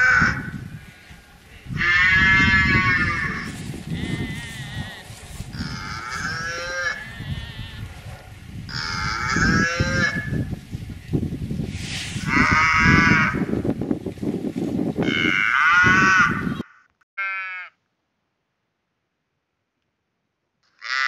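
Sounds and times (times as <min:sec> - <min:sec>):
cows mooing: 0:01.8 - 0:08.0
low rustling noise: 0:03.3 - 0:05.7, 0:10.4 - 0:12.4.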